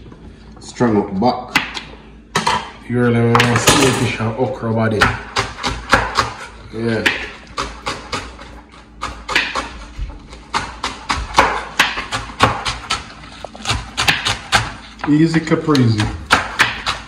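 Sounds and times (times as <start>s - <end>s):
knife chopping on wooden board: 5.0s - 17.0s.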